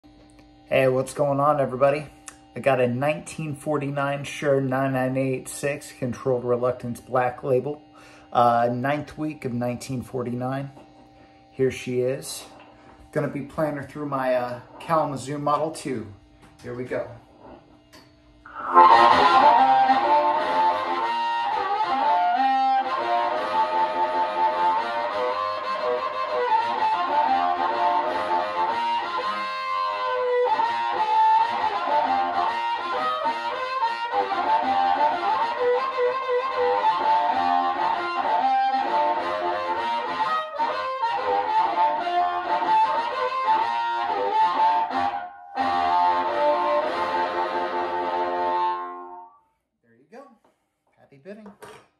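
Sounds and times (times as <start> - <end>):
amplified harmonica with bending notes: 18.4 - 49.6.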